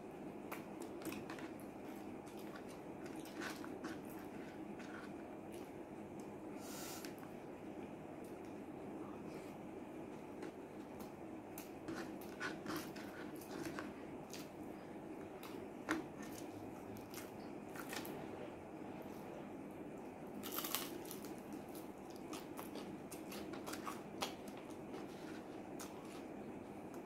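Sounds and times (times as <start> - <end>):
chewing and crunching food: 0.3 - 6.4, 10.0 - 18.2, 20.0 - 27.0.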